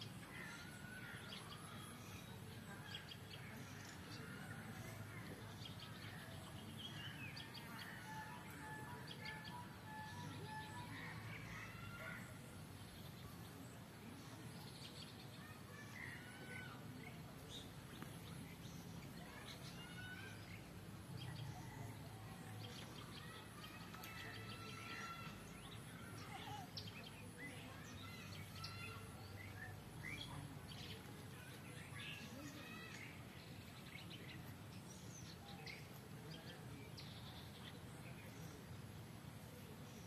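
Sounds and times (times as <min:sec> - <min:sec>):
small birds chirping and whistling: 0:17.4 - 0:38.7.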